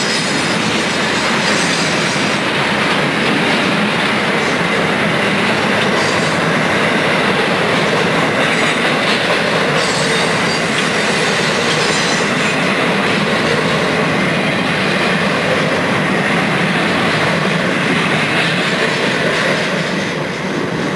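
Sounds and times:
high wheel squeals: 0:00.0 - 0:02.4, 0:09.7 - 0:12.7
steel wheels rumbling on rail: 0:00.0 - 0:20.9.

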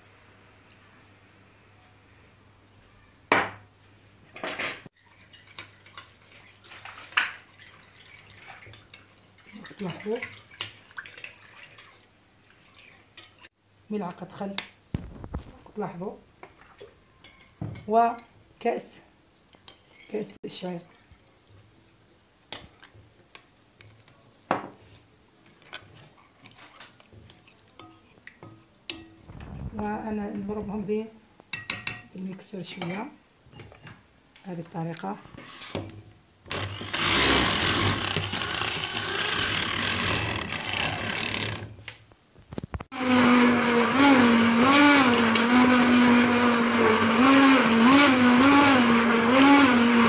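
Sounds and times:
metal spoon clinking on glass bowl: 0:31.5 - 0:32.1.

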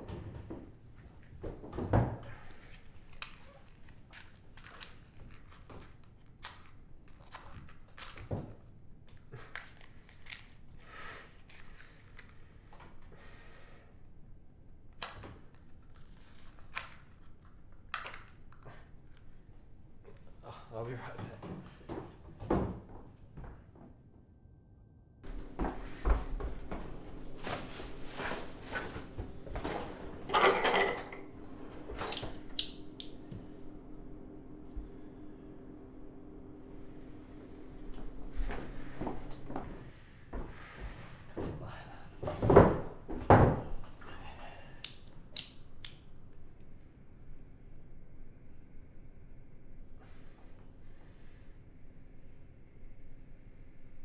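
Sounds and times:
steady low hum: 0:25.2 - 0:43.1
rummaging rattles and clatter: 0:26.6 - 0:31.2
kitchen drawers opening and shutting: 0:27.2 - 0:33.2
tableware clicks and scrapes: 0:30.2 - 0:31.3.

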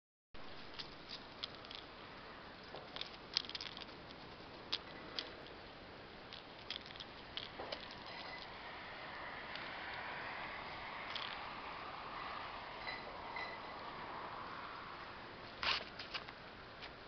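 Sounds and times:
rustling in grass and dry leaves: 0:00.4 - 0:13.7
faint steady hiss: 0:00.4 - 0:17.0.

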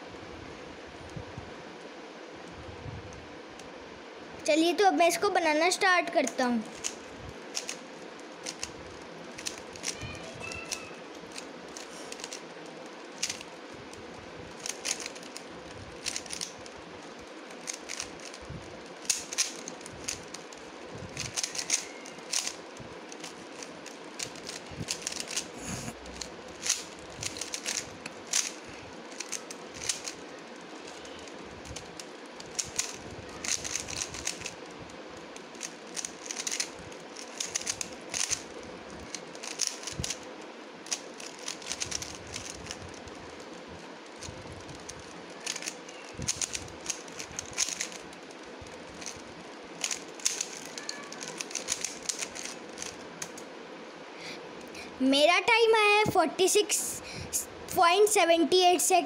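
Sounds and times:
faint steady hum: 0:00.0 - 0:59.0
puzzle cube layers clicking: 0:06.3 - 0:07.8, 0:08.4 - 0:08.8, 0:09.4 - 0:13.5, 0:14.6 - 0:18.4, 0:19.0 - 0:20.5, 0:21.2 - 0:25.5, 0:26.6 - 0:31.0, 0:31.7 - 0:34.6, 0:35.6 - 0:40.2, 0:40.9 - 0:43.0, 0:44.7 - 0:48.0, 0:48.9 - 0:49.2, 0:49.8 - 0:53.4.

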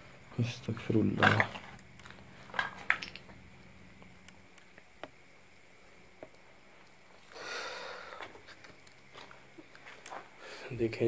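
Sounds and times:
breath out close to microphone: 0:07.3 - 0:08.3.

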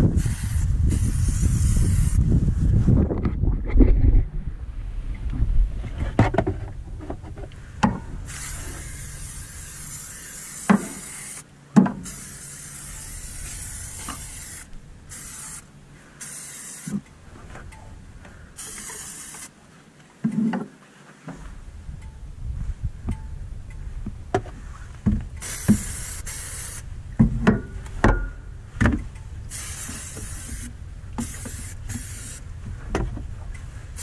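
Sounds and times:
aerosol can spraying: 0:00.2 - 0:02.2, 0:08.3 - 0:11.4, 0:12.0 - 0:17.0, 0:18.6 - 0:19.5, 0:25.4 - 0:26.8, 0:29.5 - 0:32.4.

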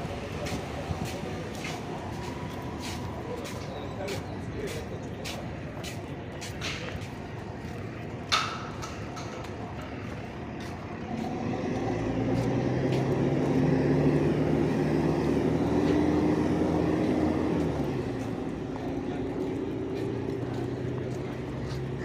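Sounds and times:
outdoor background noise: 0:00.0 - 0:22.0
heavy engine droning: 0:10.9 - 0:22.0.

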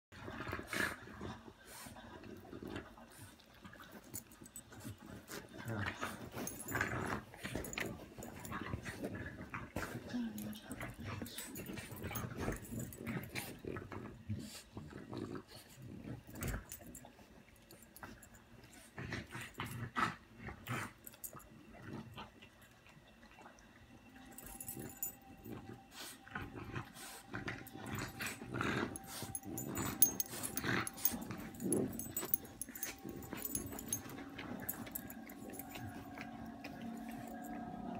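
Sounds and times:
collar tags clinking: 0:04.0 - 0:09.0, 0:10.1 - 0:13.5, 0:24.2 - 0:25.7, 0:27.3 - 0:37.8.

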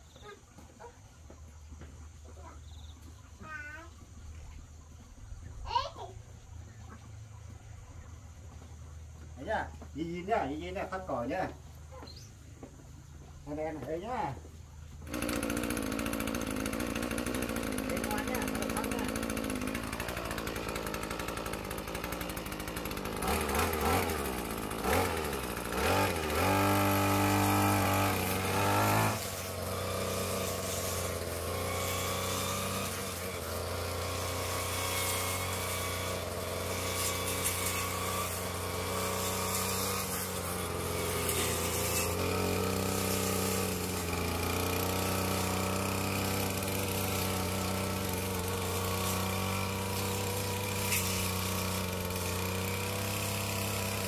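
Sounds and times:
brush cutter engine revving: 0:13.4 - 0:54.0.

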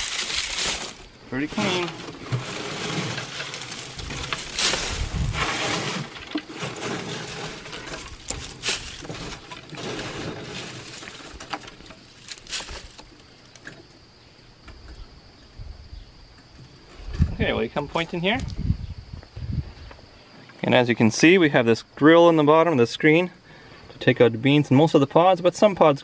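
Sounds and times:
dry bean pods rustling and crackling: 0:00.0 - 0:13.8.

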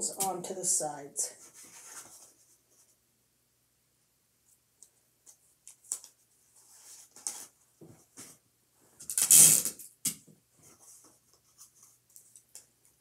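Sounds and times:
small clicks and rustles: 0:10.7 - 0:13.0.

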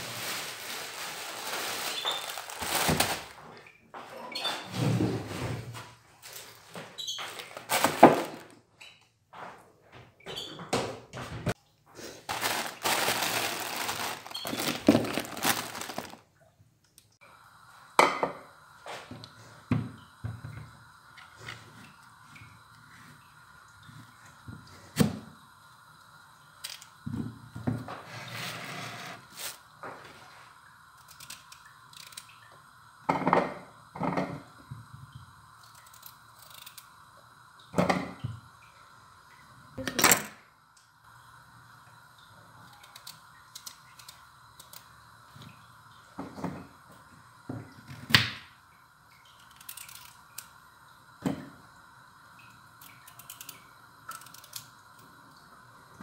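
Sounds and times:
faint steady hum: 0:12.2 - 0:28.1.

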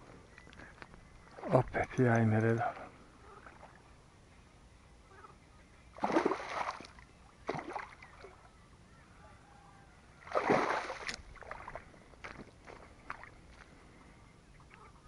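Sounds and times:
water splashing: 0:01.2 - 0:02.0, 0:05.9 - 0:08.5, 0:10.2 - 0:13.6.

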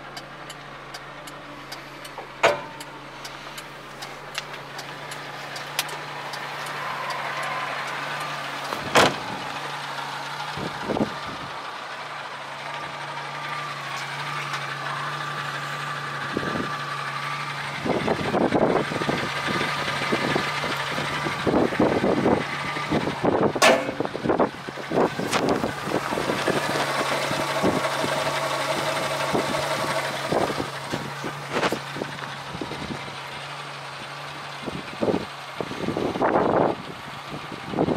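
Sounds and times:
small engine idling: 0:00.0 - 0:37.9
sharp clicks: 0:00.1 - 0:08.9.

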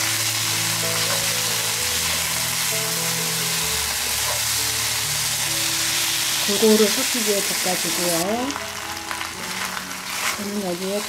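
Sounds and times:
food sizzling in a pan: 0:00.0 - 0:11.0
soft background music: 0:00.0 - 0:11.0.

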